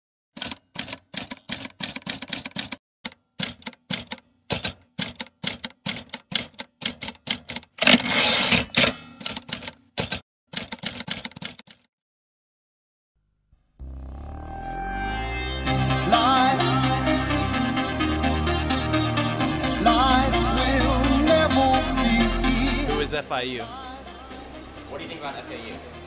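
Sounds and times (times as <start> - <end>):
typewriter keys clacking: 0.4 - 2.8, 3.4 - 11.9
typewriter rasp: 0.4 - 2.8, 3.4 - 11.9.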